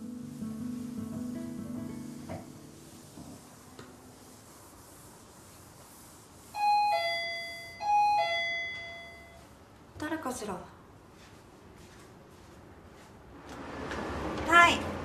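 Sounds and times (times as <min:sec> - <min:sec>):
doorbell ding-dong chime: 0:06.6 - 0:09.4.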